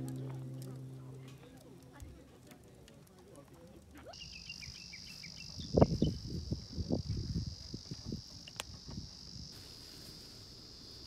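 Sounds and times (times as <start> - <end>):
birds chirping: 4.2 - 6.2
insects chirring: 4.2 - 11.0.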